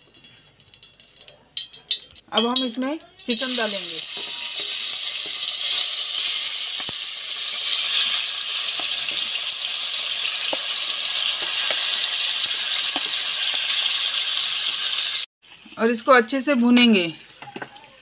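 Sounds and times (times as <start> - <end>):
chicken sizzling in hot oil: 3.2 - 15.9.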